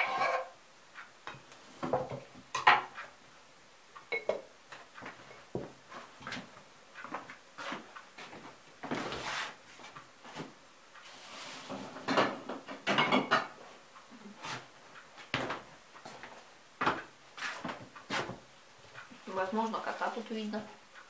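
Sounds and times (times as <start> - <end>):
kitchen knocks and clunks: 1.3 - 3.0, 12.0 - 13.6.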